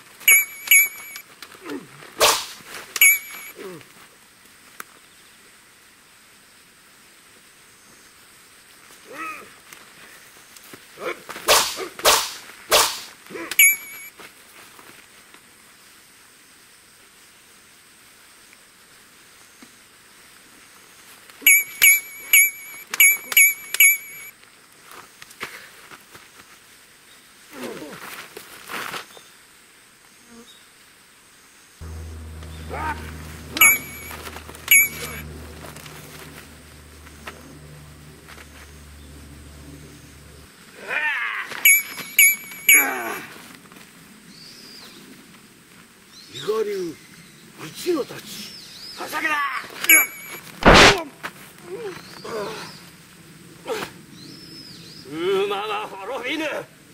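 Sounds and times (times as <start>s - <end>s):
low steady hum: 31.8s - 40.6s, 41.7s - 42.9s, 49.9s - 50.5s
metal-on-metal clash: 32.4s - 37.5s
short vocal cries: 40.8s - 43.4s
sword swishes: 50.6s - 51.0s.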